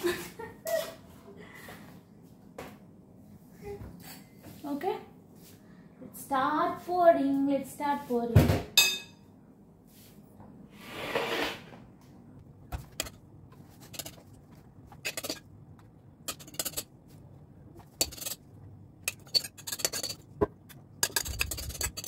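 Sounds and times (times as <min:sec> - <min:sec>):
metal spoon clinking on glass bowl: 0:08.8 - 0:09.2, 0:19.1 - 0:20.2.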